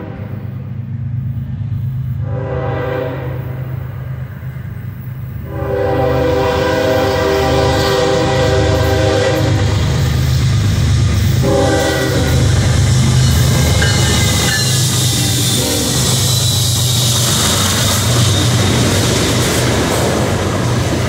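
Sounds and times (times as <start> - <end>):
train air horn blasts: 0.0 - 0.6, 2.2 - 3.9, 5.4 - 10.1, 11.3 - 18.6
diesel locomotive rumble: 0.0 - 21.0.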